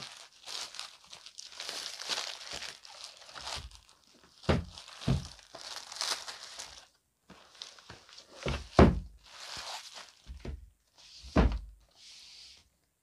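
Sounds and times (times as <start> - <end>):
plastic wrap crinkling: 0.0 - 10.6
books thudding down: 4.5 - 5.3, 8.4 - 9.1, 11.3 - 11.7.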